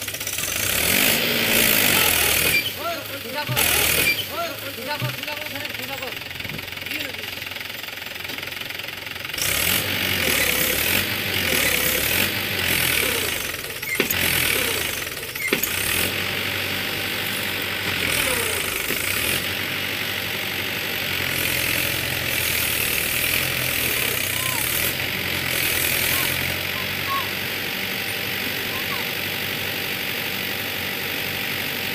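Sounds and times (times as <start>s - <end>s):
tractor diesel engine under load: 0.0s - 31.9s.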